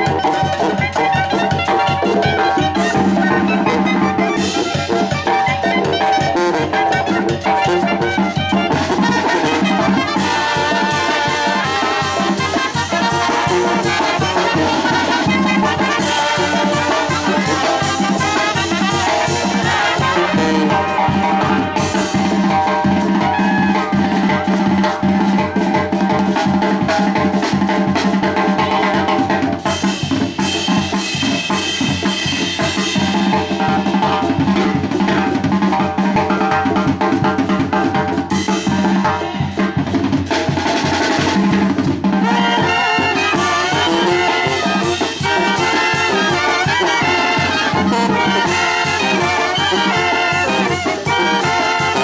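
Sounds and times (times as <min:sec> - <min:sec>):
brass band playing dance tune: 0:00.0 - 0:52.0
drums and sousaphone: 0:00.0 - 0:52.0.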